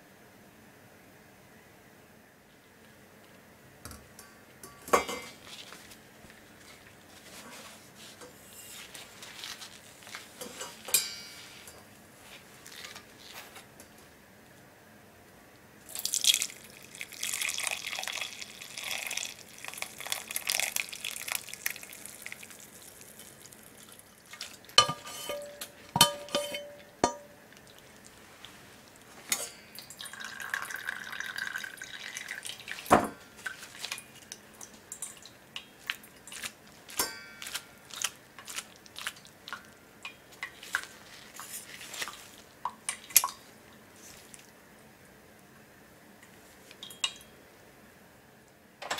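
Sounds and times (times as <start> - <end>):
liquid splashing into strainer: 15.9 - 28.1, 29.3 - 39.7, 40.4 - 43.5
small drips and taps: 29.8 - 41.0, 42.0 - 43.4.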